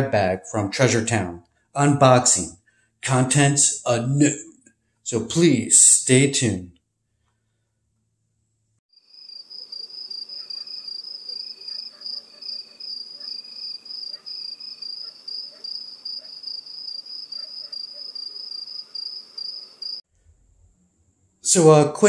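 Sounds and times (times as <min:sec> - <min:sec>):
cricket high steady trill: 0:08.9 - 0:20.0
cricket lower pulsing chirp: 0:08.9 - 0:20.0.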